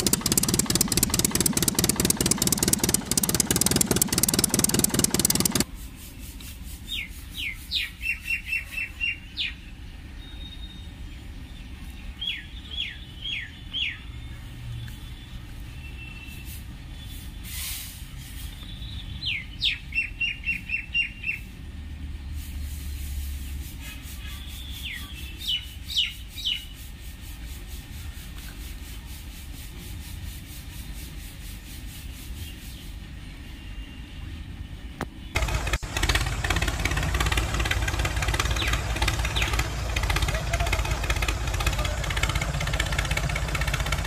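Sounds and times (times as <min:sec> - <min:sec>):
loud engine noise: 0:00.0 - 0:05.7, 0:35.4 - 0:44.0
small birds chirping: 0:35.2 - 0:43.9
low steady rumble: 0:35.4 - 0:44.0.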